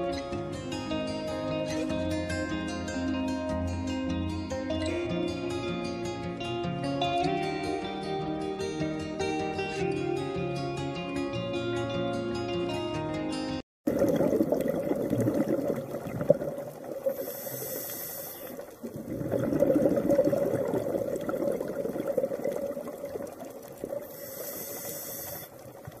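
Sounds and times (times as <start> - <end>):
underwater rush of water: 13.9 - 26.0
brief high hiss: 24.2 - 25.5.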